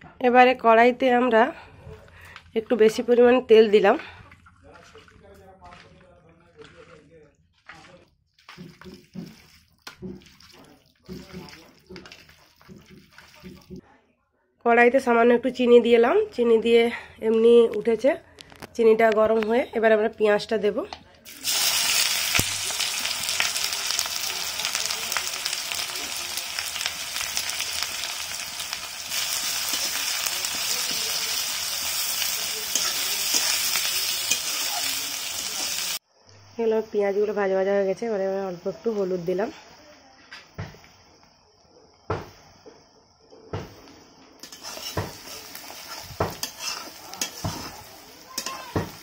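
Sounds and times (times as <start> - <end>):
onions sizzling in oil: 8.6 - 13.7, 21.3 - 36.0, 44.4 - 49.0
metal spatula scraping a pan: 29.1 - 35.9, 44.4 - 49.0.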